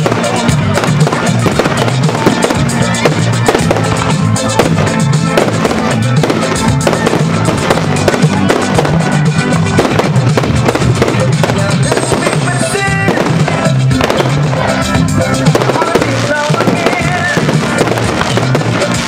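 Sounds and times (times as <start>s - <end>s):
firework shells bursting and crackling: 0.0s - 19.0s
music playing: 0.0s - 19.0s.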